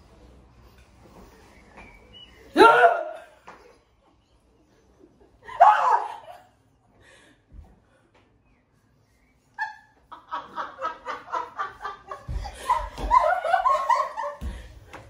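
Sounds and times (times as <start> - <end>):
group laughing: 9.6 - 14.8.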